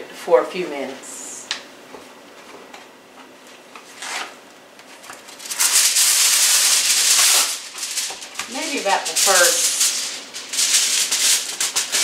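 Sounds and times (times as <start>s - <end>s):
aluminum foil pulled off roll: 3.9s - 12.0s.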